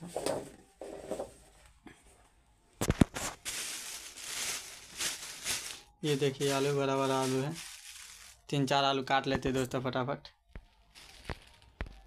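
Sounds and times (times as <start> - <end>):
plastic bag rustling: 2.8 - 8.5, 10.7 - 12.0.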